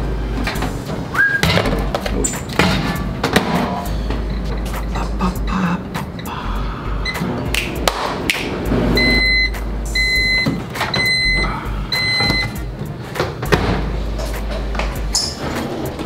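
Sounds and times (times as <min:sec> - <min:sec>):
microwave beeping: 0:08.9 - 0:12.7.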